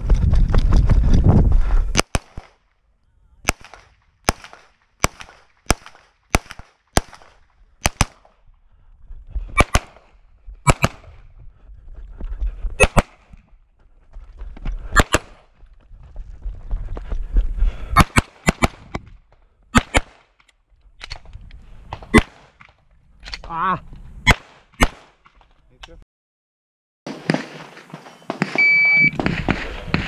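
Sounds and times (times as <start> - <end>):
pistol shots: 3.4 - 8.3, 9.6 - 10.0, 10.7 - 11.1, 18.0 - 18.8, 19.7 - 20.3, 24.3 - 25.2, 27.1 - 30.0.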